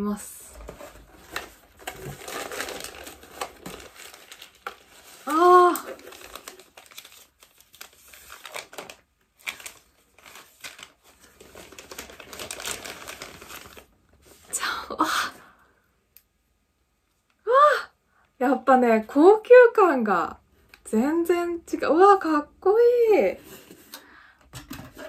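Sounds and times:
packaging crinkling and rustling: 0.5s - 14.6s.

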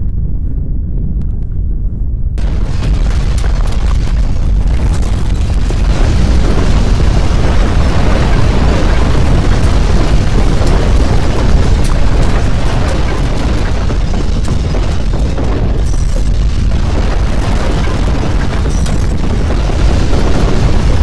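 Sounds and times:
earthquake low rumble: 0.0s - 21.0s
objects clattering: 7.5s - 19.7s.

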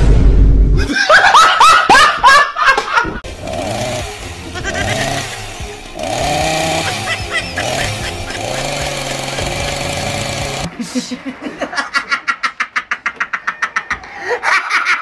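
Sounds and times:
people laughing: 0.8s - 3.2s, 4.5s - 5.4s, 6.6s - 15.0s
chainsaw engine revving: 3.2s - 10.7s.

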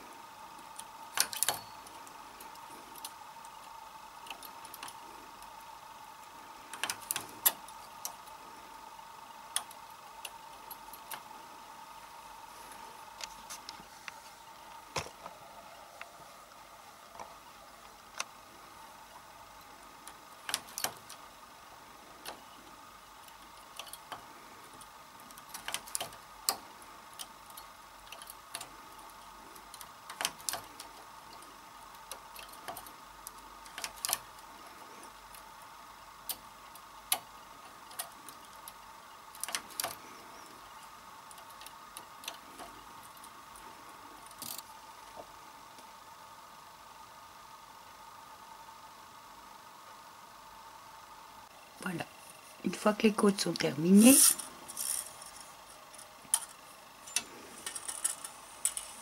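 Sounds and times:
faint steady hum: 0.0s - 59.0s
knitting machine metallic clacks: 0.6s - 5.5s, 6.7s - 8.4s, 20.0s - 21.3s, 23.2s - 35.5s, 36.2s - 40.1s, 54.0s - 55.4s, 56.0s - 59.0s.

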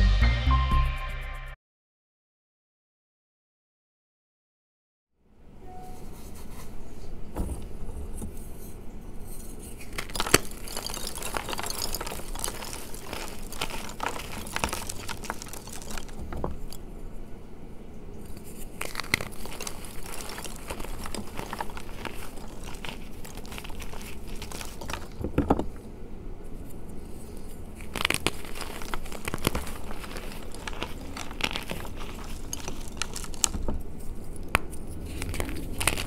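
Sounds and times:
hands crushing chalk blocks: 9.3s - 16.8s, 18.3s - 25.8s, 26.6s - 36.0s.

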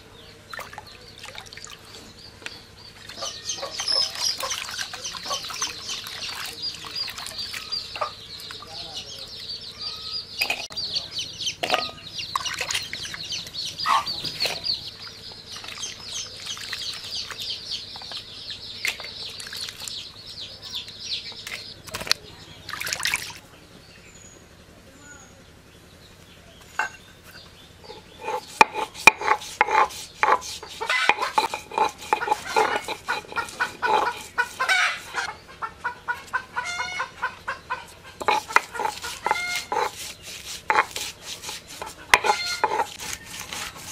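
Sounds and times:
small birds chirping: 0.0s - 43.9s
water sloshing in a bowl: 0.5s - 2.0s, 3.0s - 8.6s, 11.6s - 13.2s, 14.2s - 18.2s, 18.8s - 20.0s, 21.4s - 23.4s, 27.9s - 35.3s, 38.2s - 43.9s
chickens clucking: 2.0s - 22.1s, 26.8s - 43.9s
stone roller knocking on grinding stone: 27.9s - 35.2s, 38.2s - 43.9s.

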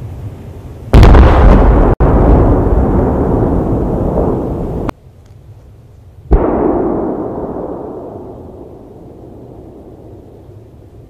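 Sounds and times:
firework shell bursts rumbling: 0.9s - 4.9s, 6.3s - 11.0s
loud firework bang: 0.9s - 4.9s, 6.3s - 10.4s.

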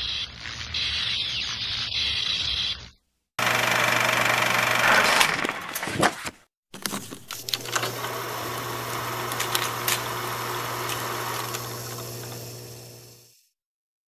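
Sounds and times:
projector motor hum: 3.4s - 5.4s, 6.8s - 13.4s
projector clicks and crackle: 8.9s - 12.5s.

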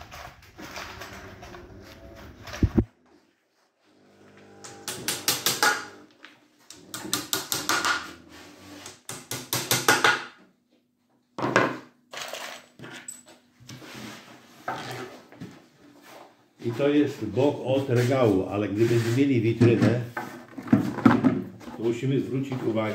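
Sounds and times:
hammer tapping wooden dowels: 4.7s - 5.9s, 6.7s - 8.1s, 8.8s - 10.4s.

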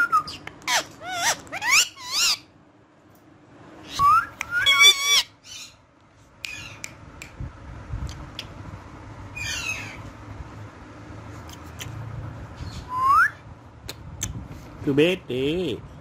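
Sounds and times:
parakeet whistled calls: 0.0s - 2.5s, 3.8s - 5.8s, 9.3s - 10.0s.

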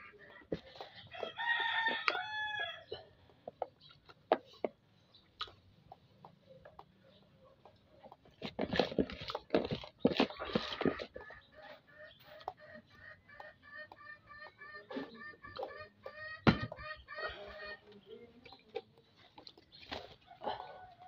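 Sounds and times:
rooster crowing: 1.2s - 2.9s.

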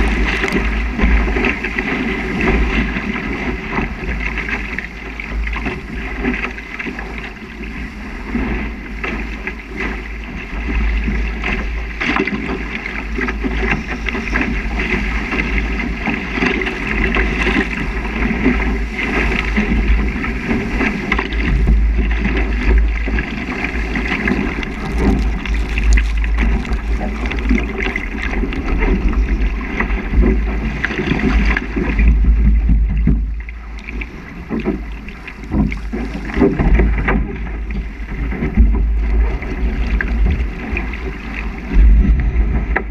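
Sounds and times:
water rushing off boat hull: 0.0s - 42.9s
water splashes: 0.0s - 42.9s
wind buffeting microphone: 0.0s - 42.9s.

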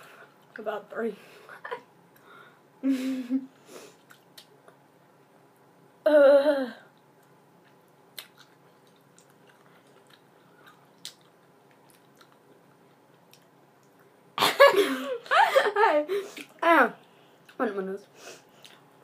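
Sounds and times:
wet chewing: 7.2s - 14.1s.

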